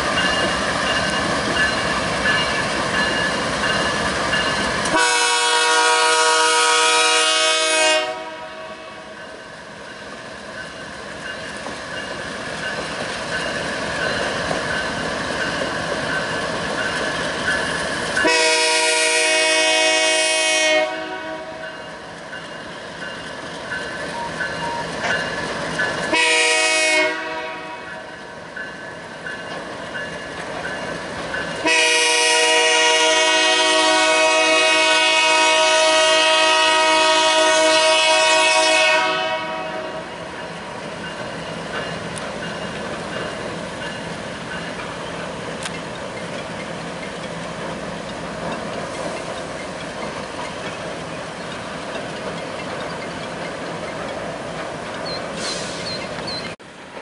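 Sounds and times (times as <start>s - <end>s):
train wheels rumbling on rails: 0.0s - 57.0s
locomotive air horn blasts: 4.9s - 9.1s, 18.2s - 21.6s, 26.1s - 28.0s, 31.6s - 40.2s.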